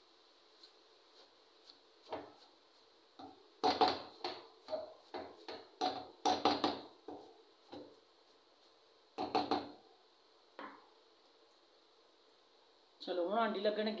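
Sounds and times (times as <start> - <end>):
wooden spoon knocking and scraping pot: 2.0 - 8.1, 9.1 - 9.8.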